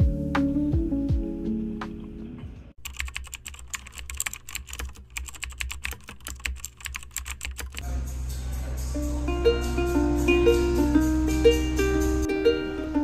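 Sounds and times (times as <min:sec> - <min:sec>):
fast laptop keyboard typing: 0:02.8 - 0:07.8.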